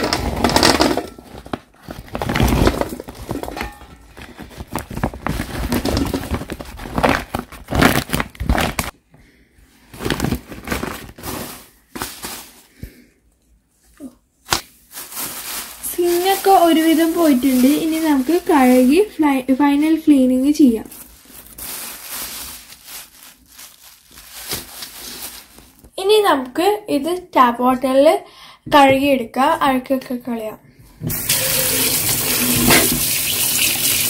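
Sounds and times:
plastic and mesh sack rustling: 0.2 - 8.9, 9.9 - 12.8, 14.6 - 25.9.

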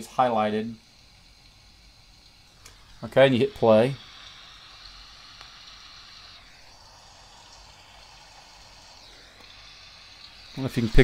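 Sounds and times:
recorded rain from phone speaker: 3.0 - 5.0.

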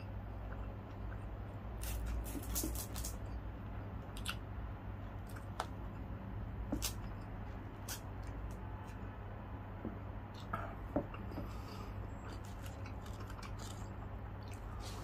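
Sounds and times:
person chewing crunchy food: 4.0 - 4.4, 10.3 - 15.0.

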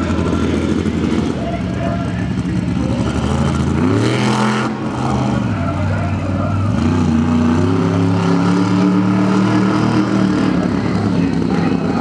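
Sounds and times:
monster truck engine revving: 0.0 - 12.0.

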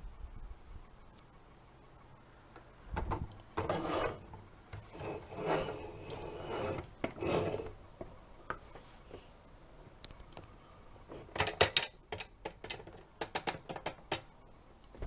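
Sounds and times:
plastic toy scraping and rubbing: 3.6 - 7.8.

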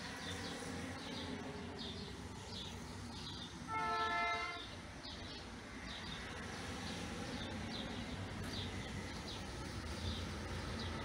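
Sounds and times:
low outdoor rumble: 0.0 - 11.0
short horn blast: 3.7 - 4.7.

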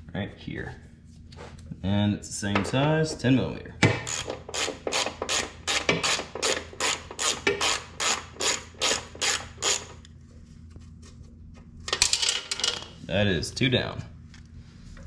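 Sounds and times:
ratchet wrench clicking: 4.0 - 10.1.

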